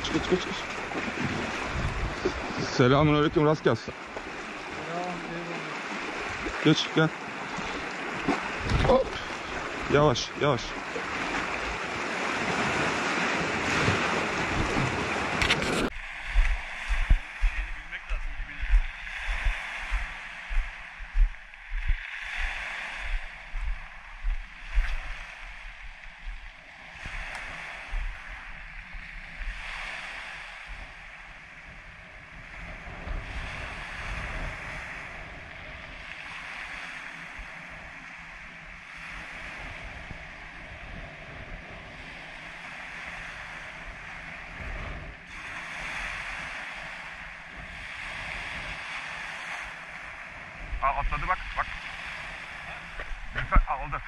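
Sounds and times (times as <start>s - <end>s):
surf hissing over rocks: 0.0s - 1.0s, 2.1s - 10.8s, 50.8s - 54.0s
wind rumble on microphone: 0.0s - 4.8s, 7.4s - 10.0s, 10.9s - 54.0s
waves washing on pebble beach: 0.0s - 21.0s, 22.0s - 54.0s
low bumps on microphone: 15.6s - 22.0s.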